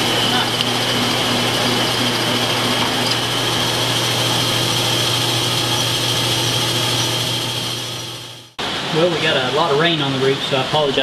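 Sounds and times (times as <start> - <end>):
metal lathe cutting steel: 0.0 - 8.6.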